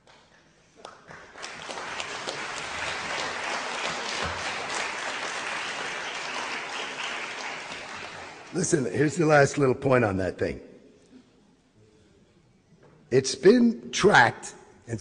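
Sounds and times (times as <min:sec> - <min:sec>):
audience applause: 0:01.1 - 0:08.9.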